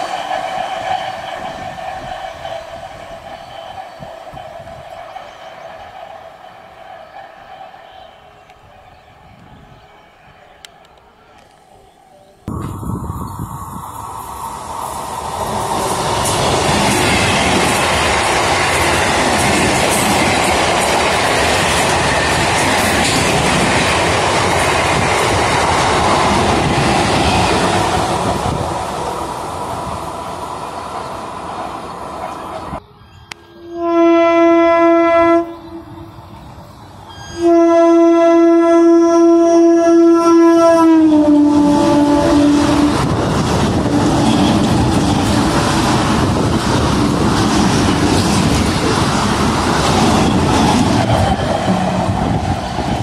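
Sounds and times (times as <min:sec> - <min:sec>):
train passing at speed: 0:00.0 - 0:53.0
train horn blasts: 0:33.4 - 0:36.1, 0:37.1 - 0:43.1.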